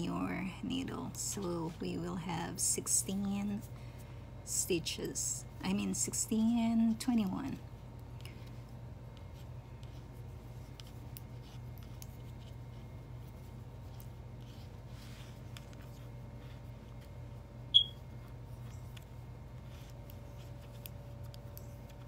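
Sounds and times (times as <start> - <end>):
steady low hum: 0.0 - 22.0
short high-pitched beep: 17.7 - 18.0.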